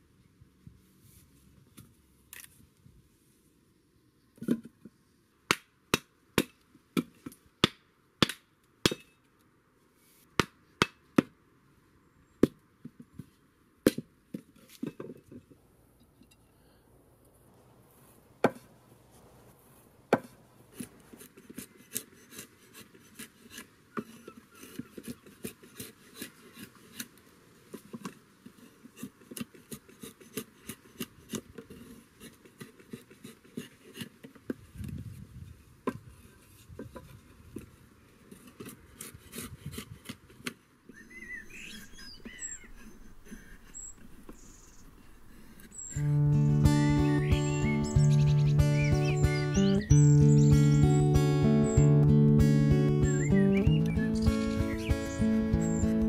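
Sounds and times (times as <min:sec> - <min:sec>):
drawknife scraping wood: 0:20.1 - 0:34.6, 0:38.3 - 0:40.6.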